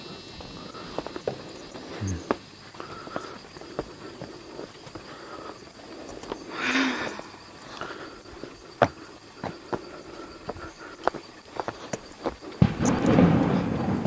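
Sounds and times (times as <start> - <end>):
footsteps on stone steps: 0.4 - 6.4, 7.7 - 12.8.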